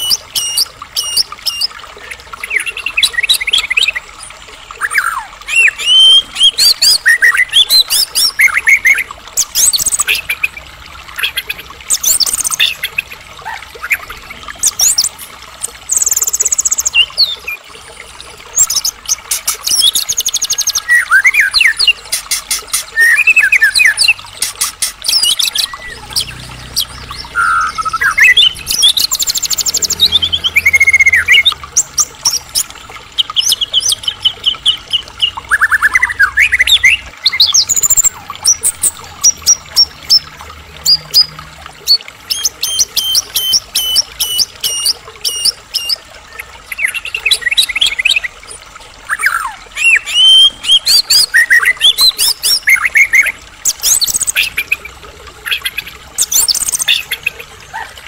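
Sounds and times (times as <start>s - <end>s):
bird singing whistles and trills: 25.0s - 31.6s.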